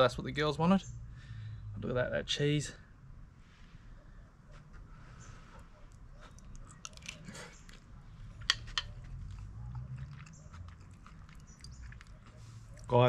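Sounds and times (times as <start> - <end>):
person chewing: 5.9 - 12.9
wet mouth clicks: 8.5 - 12.9.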